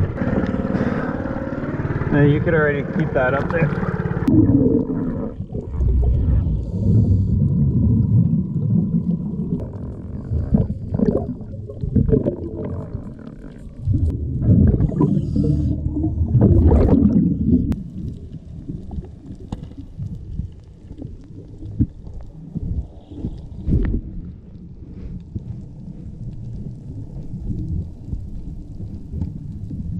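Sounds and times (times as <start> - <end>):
muffled underwater rumbling: 0.0 - 29.9.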